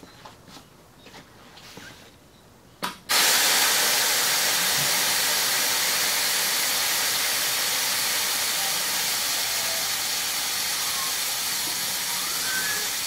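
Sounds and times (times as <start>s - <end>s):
loud hiss of air venting: 3.1s - 13.0s.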